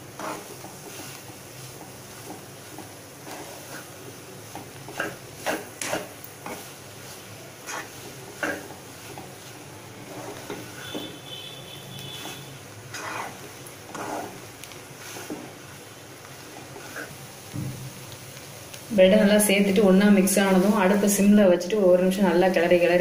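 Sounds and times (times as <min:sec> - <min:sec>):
spatula scraping a pan: 0:00.0 - 0:17.2, 0:20.2 - 0:21.0.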